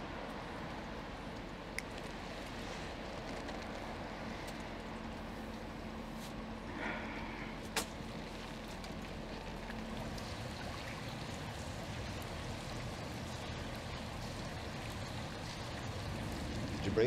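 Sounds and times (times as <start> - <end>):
outdoor background noise: 0.0 - 17.0
faint hum: 3.7 - 17.0.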